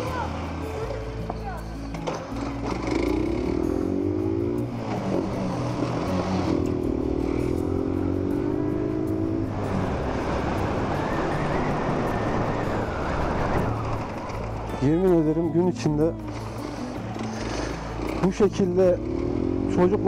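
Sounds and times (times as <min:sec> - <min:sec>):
motorcycle engine pulling away: 0:02.0 - 0:14.9, 0:16.3 - 0:20.0.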